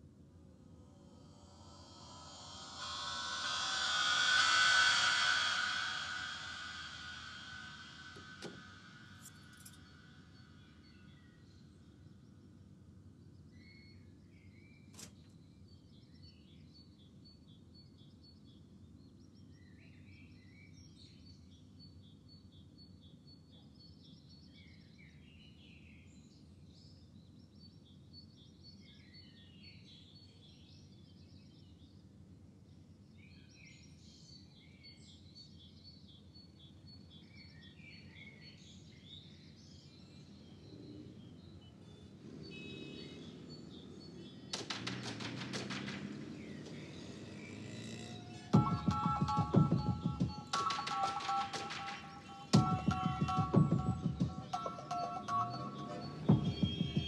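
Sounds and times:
low ambient hum: 0.0 - 12.4
faint birds chirping: 0.9 - 57.0.

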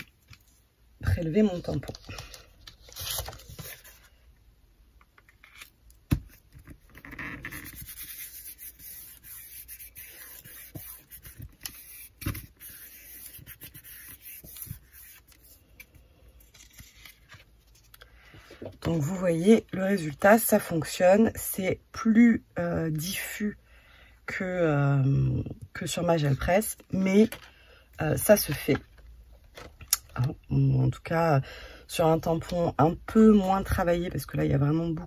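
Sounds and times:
paper rubbing and scraping: 6.9 - 15.6, 16.4 - 17.9.

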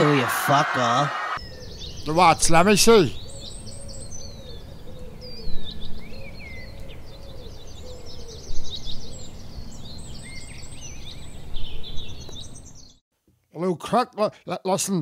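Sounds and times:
small birds chirping: 1.4 - 13.0.

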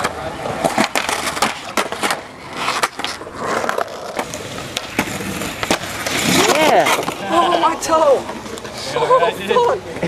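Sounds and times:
skateboard clacks and knocks: 0.0 - 7.4
skateboard scraping along concrete ledge: 0.0 - 10.0.

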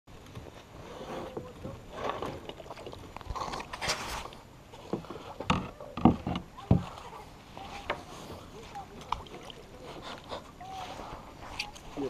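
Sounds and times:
water rush: 0.7 - 12.0
paddle knocking on kayak hull: 4.9 - 7.0.

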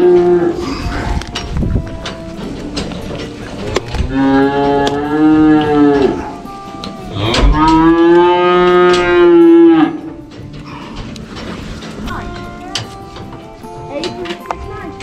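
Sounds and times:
cow mooing: 0.0 - 1.4, 4.1 - 11.0.

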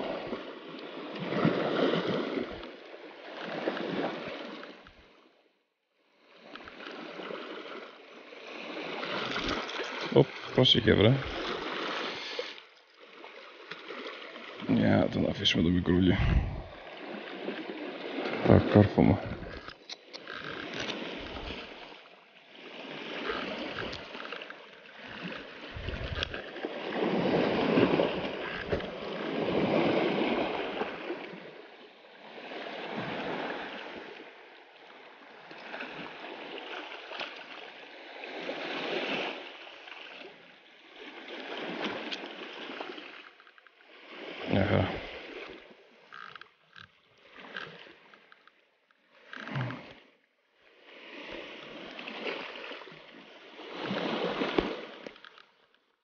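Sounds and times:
waves lapping on rocky shore: 0.0 - 56.0.

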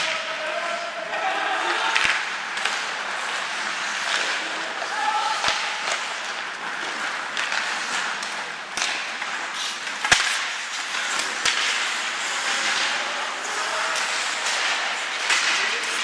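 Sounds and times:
skates scraping on ice: 0.0 - 16.0
stick hitting puck: 1.8 - 16.0.

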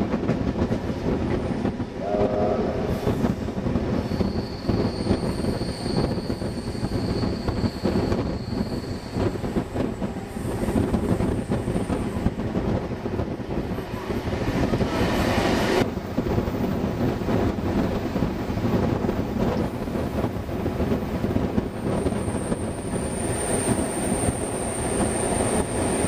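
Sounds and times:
train rolling on rails: 0.0 - 26.0
rushing noise: 2.0 - 4.2.

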